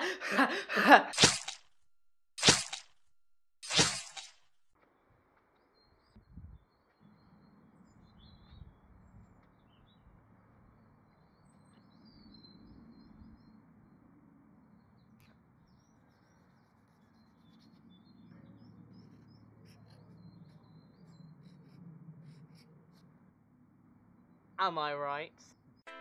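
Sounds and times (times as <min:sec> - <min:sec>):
small birds chirping: 0:15.0 - 0:22.6.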